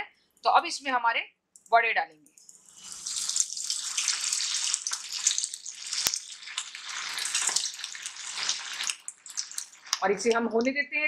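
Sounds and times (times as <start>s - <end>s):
hot oil sizzling and bubbling: 2.5s - 10.3s.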